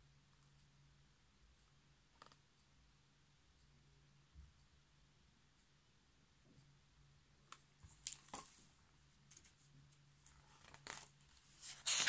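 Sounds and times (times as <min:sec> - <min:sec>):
paper pages rustling: 0:07.8 - 0:08.7, 0:10.2 - 0:12.0.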